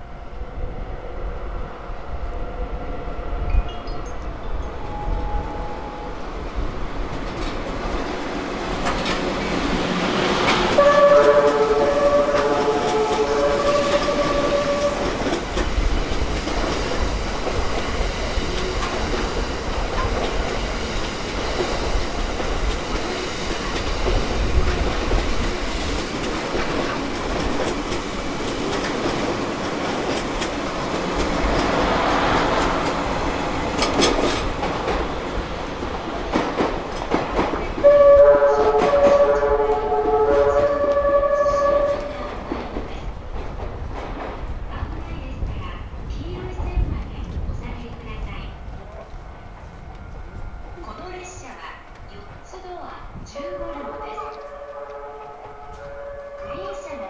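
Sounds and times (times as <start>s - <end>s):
train running on rails: 0.0s - 57.0s
train horn playing a tune: 4.8s - 6.2s, 10.7s - 15.3s, 37.8s - 42.4s, 53.4s - 57.0s.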